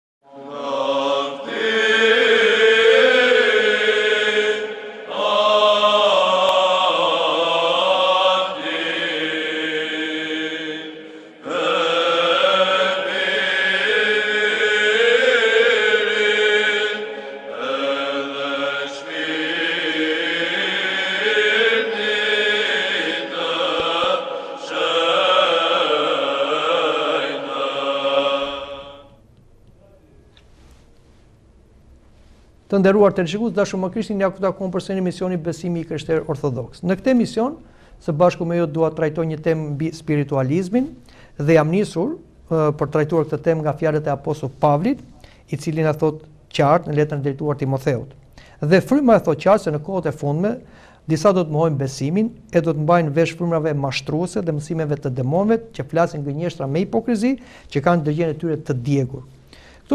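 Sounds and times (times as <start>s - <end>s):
voices singing church chant: 0.2s - 29.3s.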